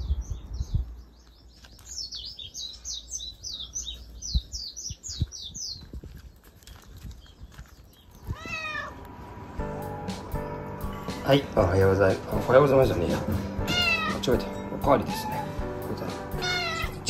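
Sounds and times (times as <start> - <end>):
bird chirping: 0.0 - 8.7
cat meowing: 8.3 - 9.0, 13.6 - 14.3, 15.0 - 15.6, 16.4 - 17.0.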